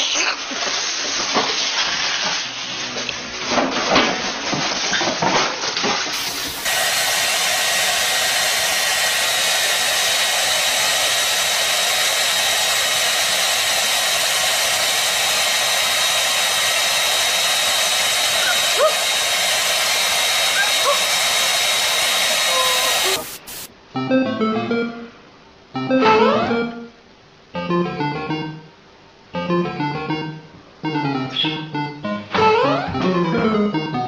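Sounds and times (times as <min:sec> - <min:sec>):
hair dryer blowing: 0:06.2 - 0:23.7.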